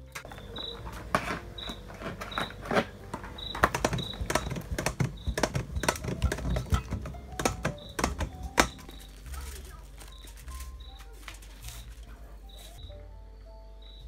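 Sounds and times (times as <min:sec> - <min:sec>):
cheese grating on metal grater: 0:00.5 - 0:08.8.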